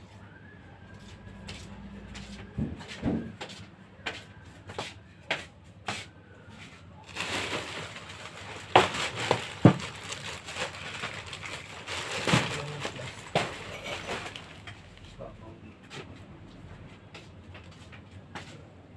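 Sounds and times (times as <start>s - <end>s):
plastic bag rustling: 7.0s - 15.2s.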